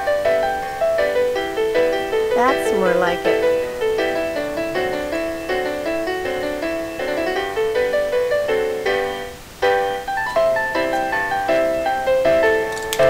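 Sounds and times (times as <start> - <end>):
keyboard playing quick notes: 1.9 - 7.7.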